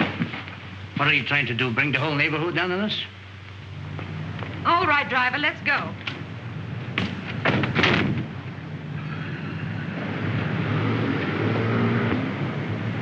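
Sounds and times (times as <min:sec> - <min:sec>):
sharp knocks: 0:07.0 - 0:08.3.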